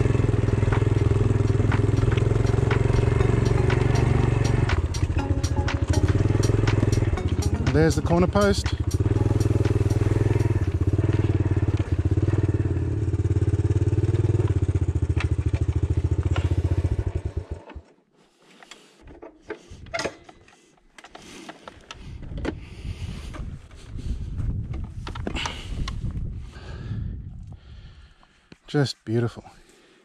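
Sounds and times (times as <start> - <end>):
motorcycle engine running: 0.0 - 17.9.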